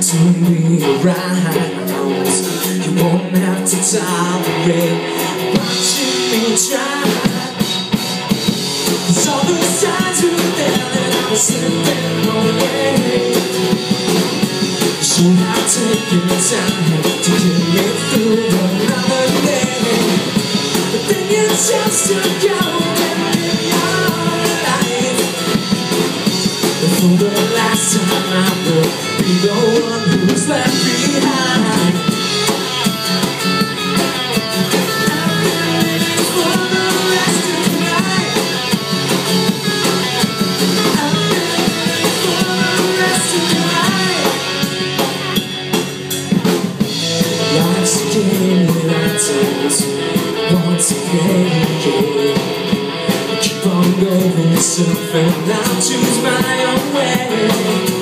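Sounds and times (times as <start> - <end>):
person singing: 0.0 - 8.2, 8.9 - 45.5, 47.2 - 58.0
drum kit: 0.0 - 58.0
electric and acoustic guitars: 0.0 - 58.0.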